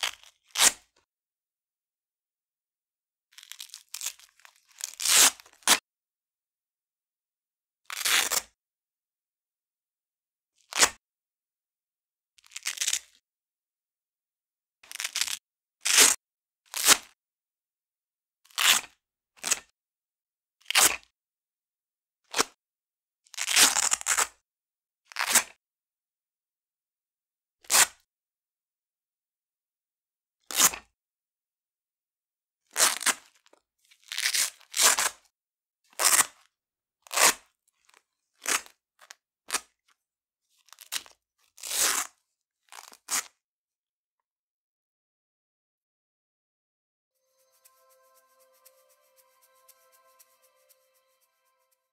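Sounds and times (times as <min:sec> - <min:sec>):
velcro ripping: 0:00.0 - 0:00.8, 0:04.9 - 0:05.8, 0:14.9 - 0:17.1, 0:18.5 - 0:19.6, 0:36.0 - 0:36.3, 0:40.8 - 0:42.1, 0:42.7 - 0:43.3.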